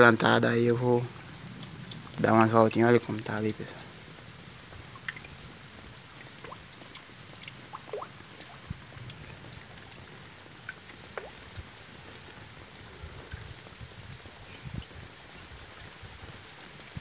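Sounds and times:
steady light rain: 0.0 - 17.0
water dripping off roof eave: 0.0 - 17.0.

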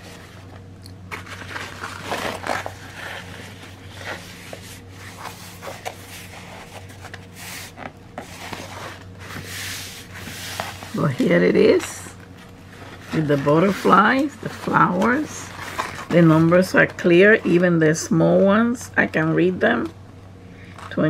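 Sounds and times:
steady low hum: 0.0 - 21.0
canvas fabric rustling and rubbing: 1.2 - 11.8.

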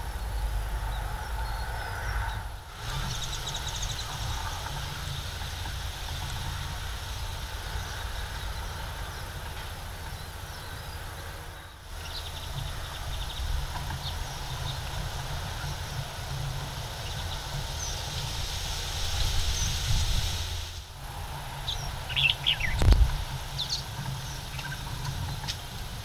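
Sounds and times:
small bird chirps: 0.0 - 5.2
steady low rumble: 0.0 - 26.0.

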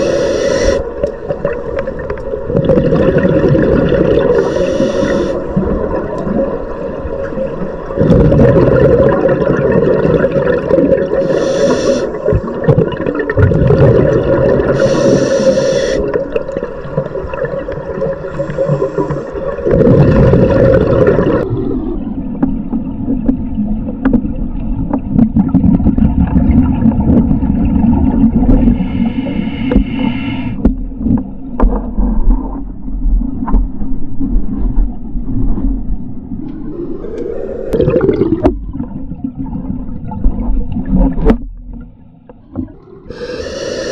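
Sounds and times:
regulator breathing: 0.0 - 0.9, 4.3 - 5.5, 11.2 - 12.3, 14.7 - 16.1, 42.8 - 43.9
bubbling: 0.0 - 6.6, 7.8 - 21.9, 36.4 - 43.9
boat engines drone underwater: 0.0 - 43.9.

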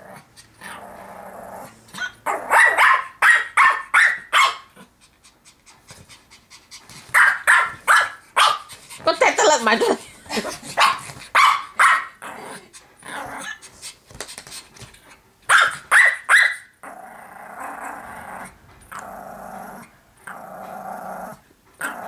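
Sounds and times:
dog growling: 0.0 - 2.6, 12.2 - 13.6, 16.8 - 22.0
small dog barking: 2.0 - 4.8, 7.1 - 8.7, 10.8 - 12.2, 15.5 - 16.7.

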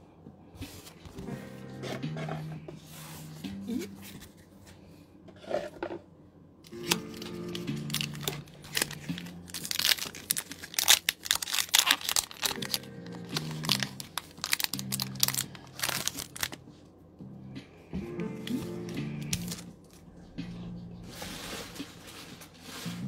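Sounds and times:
background music with held notes: 0.0 - 5.0, 6.7 - 11.4, 12.0 - 23.0
foil wrapper crinkling and tearing: 6.7 - 16.6, 19.2 - 20.0.

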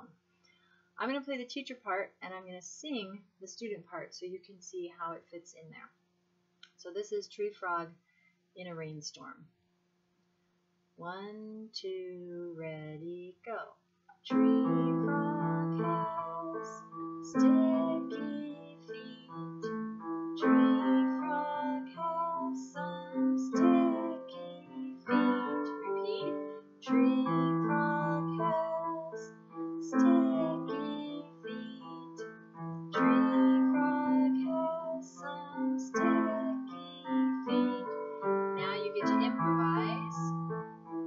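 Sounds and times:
electronic keyboard piano: 14.3 - 41.0.

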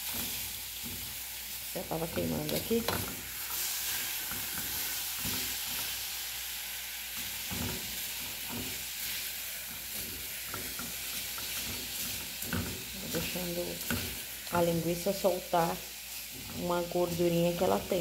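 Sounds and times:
sausage and onion sizzling: 0.0 - 18.0
spatula scraping pot: 7.2 - 15.1.

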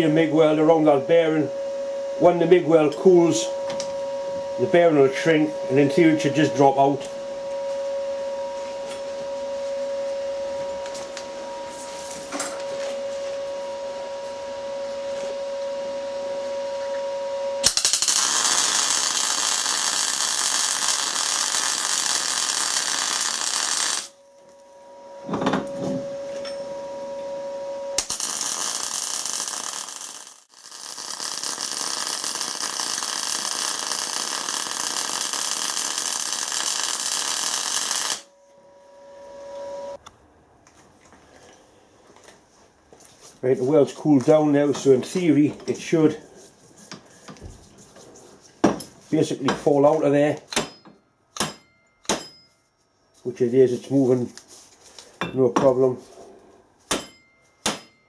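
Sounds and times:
steady hum: 0.0 - 30.5, 31.3 - 40.6
welder arc crackling: 17.6 - 24.6, 28.0 - 40.0.

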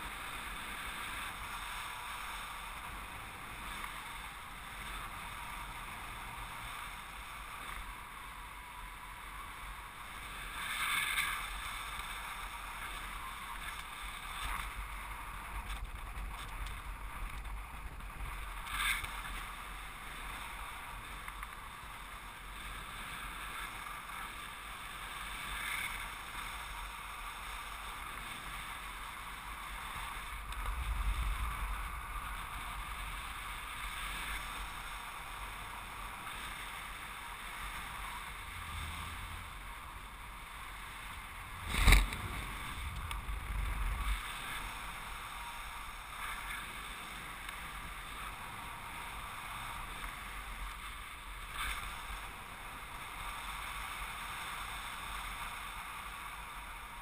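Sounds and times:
wind rushing over camera: 0.0 - 57.0
buffeting wind rumble: 29.5 - 46.2.

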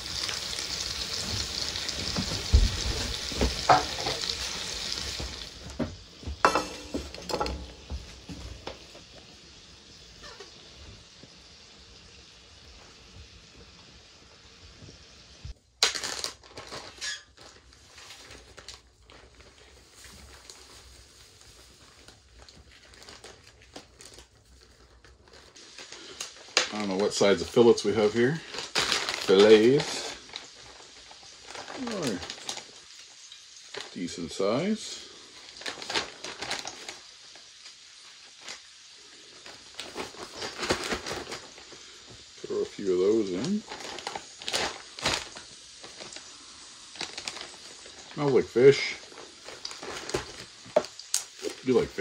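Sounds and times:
plastic bags crinkling: 0.2 - 5.8, 15.7 - 34.0, 34.6 - 52.0.

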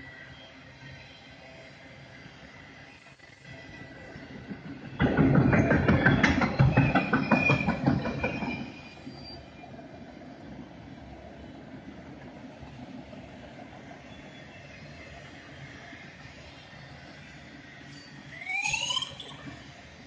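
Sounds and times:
train cars rolling: 0.8 - 20.0
train wheels clacking on rails: 3.4 - 20.0.

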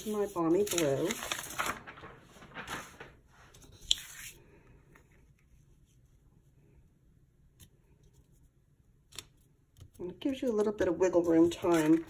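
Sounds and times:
cardstock rustling: 0.0 - 4.4, 10.2 - 12.0.

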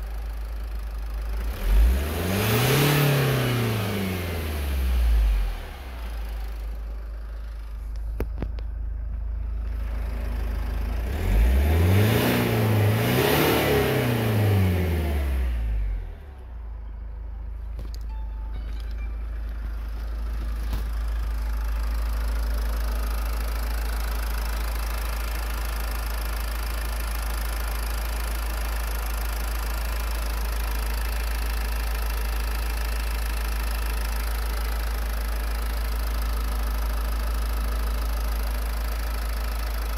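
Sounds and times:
diesel engine idling: 3.2 - 39.9.

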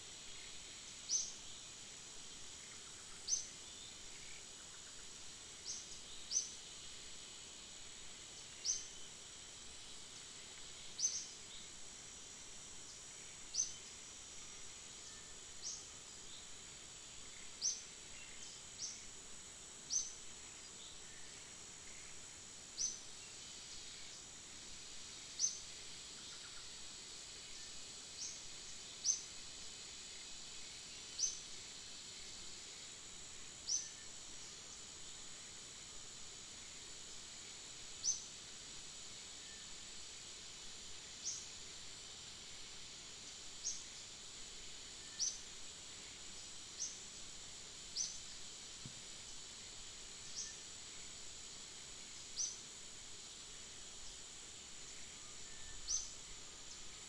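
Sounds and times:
high-pitched insect drone: 0.2 - 48.6, 49.2 - 57.0.

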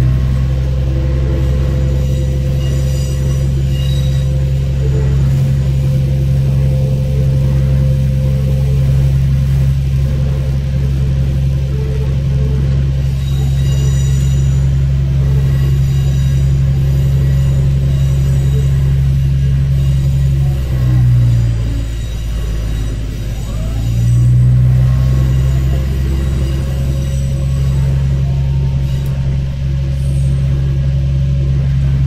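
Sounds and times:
diesel railcar engine hum: 0.0 - 32.0
wheels rumbling on track: 0.0 - 32.0
wheels squealing: 0.0 - 32.0.

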